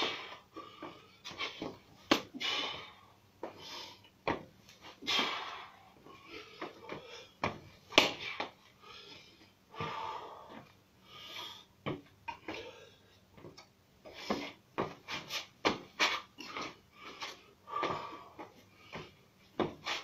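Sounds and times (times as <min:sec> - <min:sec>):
man exhaling forcefully: 0:02.3 - 0:03.1, 0:05.0 - 0:06.0, 0:09.7 - 0:10.6
foot thumps: 0:04.2 - 0:05.6, 0:06.6 - 0:08.6, 0:09.7 - 0:10.7, 0:11.8 - 0:12.6, 0:13.3 - 0:20.0
sharp smacks: 0:08.0 - 0:08.3.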